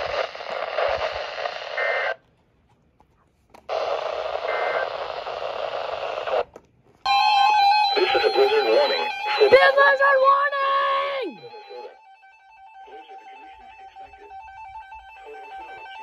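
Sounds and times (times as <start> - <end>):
radio static hiss: 0.0 - 2.2, 3.7 - 6.5, 8.0 - 9.7
electronic alert tones: 11.3 - 16.0.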